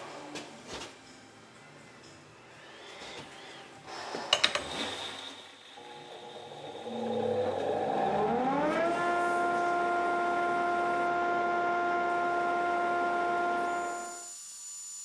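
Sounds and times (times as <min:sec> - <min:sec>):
belt grinder motor whine: 0:05.8 - 0:15.0.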